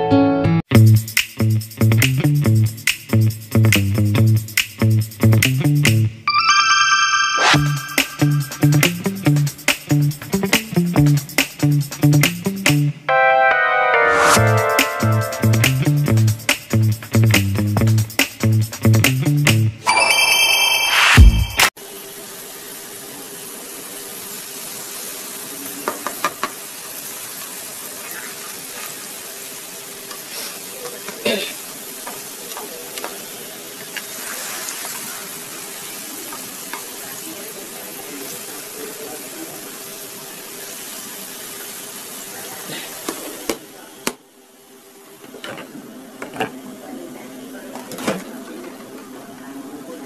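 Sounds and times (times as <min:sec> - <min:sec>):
garlic sizzling in butter: 0:22.3 - 0:39.0.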